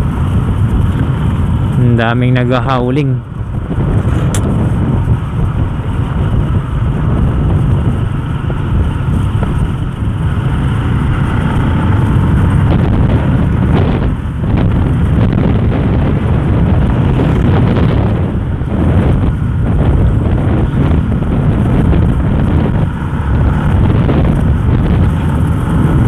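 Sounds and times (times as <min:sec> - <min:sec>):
motorcycle engine: 0:00.0 - 0:26.0
wind rushing over microphone: 0:00.0 - 0:26.0.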